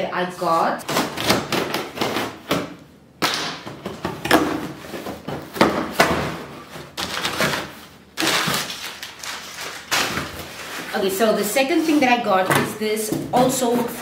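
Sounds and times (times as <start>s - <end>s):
packing paper crinkling: 6.8s - 12.1s.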